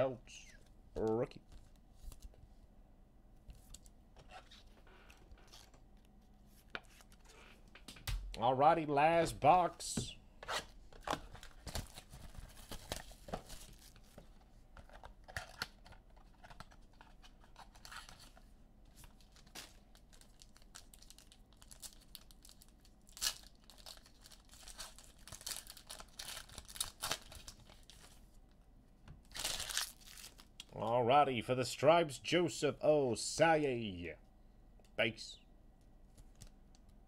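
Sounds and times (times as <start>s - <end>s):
card packs torn and crinkled: 19.0s - 28.2s, 29.3s - 30.7s.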